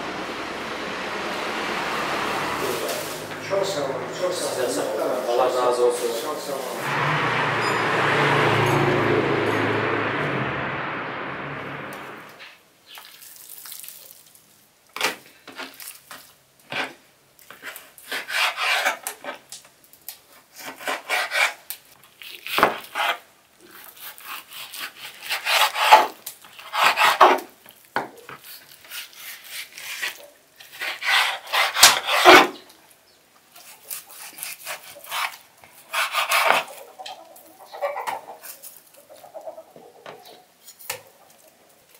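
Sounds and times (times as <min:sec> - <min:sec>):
street traffic: 0:00.0 - 0:12.4
knife cutting raw meat: 0:22.4 - 0:27.4, 0:28.4 - 0:32.5, 0:33.6 - 0:36.8.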